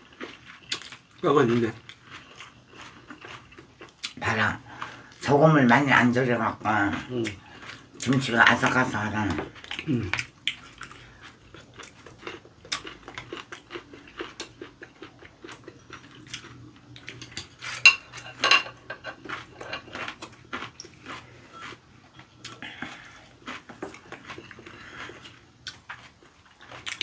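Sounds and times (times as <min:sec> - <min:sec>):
chewing: 0:00.0 - 0:05.3, 0:06.7 - 0:27.0.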